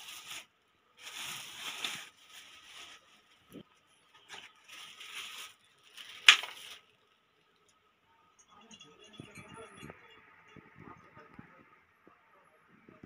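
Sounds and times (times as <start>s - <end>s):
plastic bag rustling: 0.0s - 7.0s.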